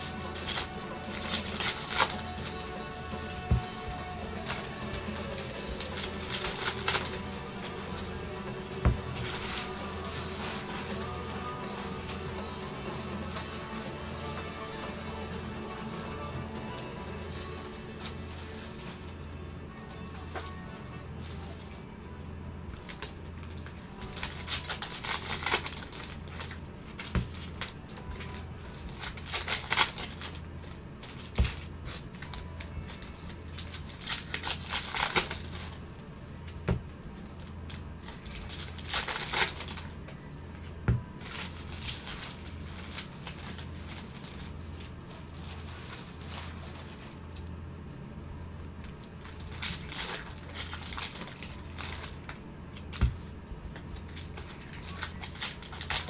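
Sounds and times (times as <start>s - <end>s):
foil wrappers tearing and crinkling: 0.0s - 14.7s, 22.8s - 35.8s, 37.3s - 40.2s, 41.2s - 47.3s, 48.8s - 53.2s, 53.8s - 56.0s.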